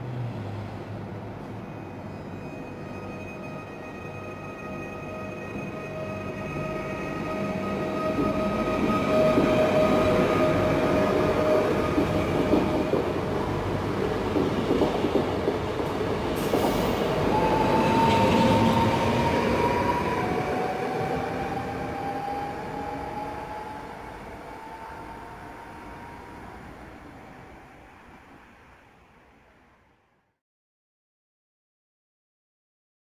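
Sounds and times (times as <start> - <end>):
approaching train whine: 0.7 - 30.1
train wheels rumbling on rail: 5.5 - 27.7.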